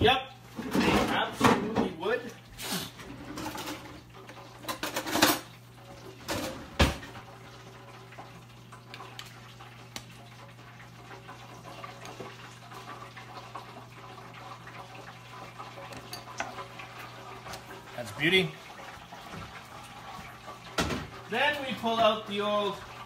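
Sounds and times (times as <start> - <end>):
dishes and utensils clattering: 0.6 - 2.0, 3.0 - 5.6, 6.2 - 7.2, 15.7 - 17.9.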